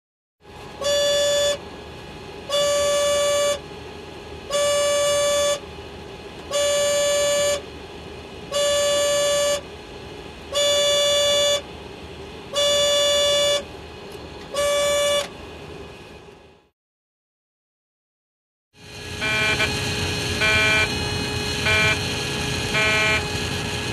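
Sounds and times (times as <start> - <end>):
cockpit hum: 0.5 - 16.7, 18.8 - 23.9
horn-like warning alarm: 0.8 - 1.6, 2.4 - 3.6, 4.4 - 5.7, 6.5 - 7.7, 8.5 - 9.7, 10.5 - 11.7, 12.5 - 13.7, 14.5 - 15.3, 18.8 - 23.9.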